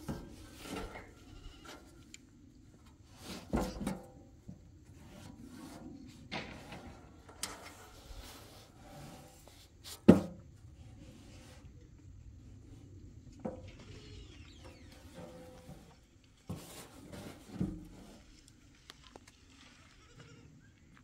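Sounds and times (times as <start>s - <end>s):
objects knocking and scraping: 3.2s - 10.5s, 14.8s - 18.3s.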